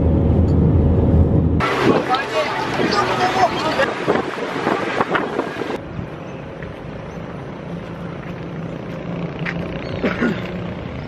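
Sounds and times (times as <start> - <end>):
low hum: 0.0 - 3.3
wind rushing over microphone: 0.0 - 7.1
road and engine noise: 0.0 - 11.0.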